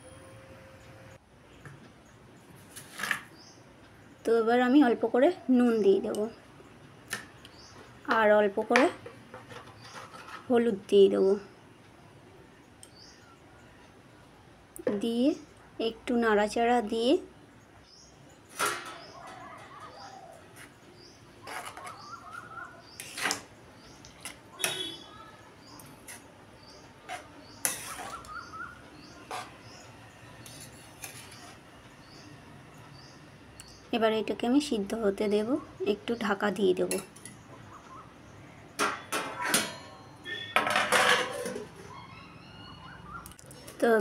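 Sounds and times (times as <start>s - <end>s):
spatula scraping a pan: 9.3s - 10.5s, 21.4s - 22.2s, 22.9s - 23.5s, 25.9s - 26.3s, 27.0s - 31.6s
small bird chirping: 17.8s - 32.3s
metal plate knocking on pot: 40.6s - 41.6s
metal scraping clatter: 40.6s - 41.7s.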